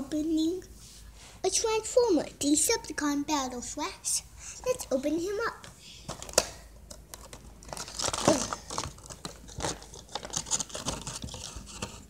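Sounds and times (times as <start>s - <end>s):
plastic packaging crinkling: 6.0s - 12.0s
packaging clicks: 6.1s - 12.0s.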